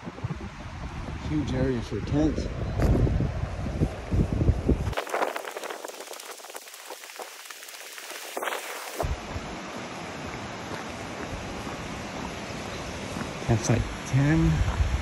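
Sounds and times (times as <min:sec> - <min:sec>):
footsteps on gravel: 0:10.2 - 0:11.9.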